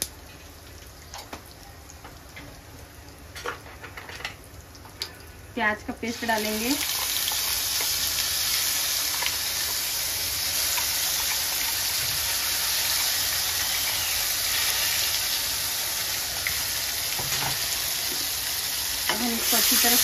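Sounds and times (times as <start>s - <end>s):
paste sizzling in hot oil: 6.0s - 20.0s.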